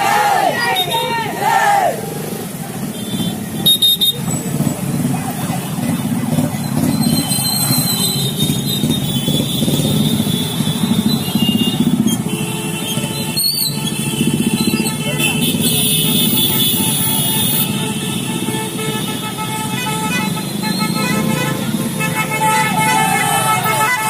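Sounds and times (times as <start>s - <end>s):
motorcycle engines droning: 0.0s - 12.3s.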